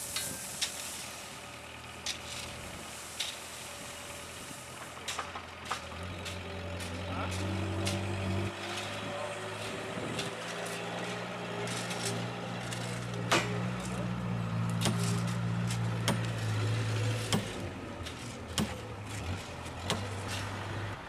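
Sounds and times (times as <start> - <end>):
hammer striking metal rails: 10.2 - 14.0, 14.7 - 16.4, 17.2 - 19.2, 19.8 - 20.4.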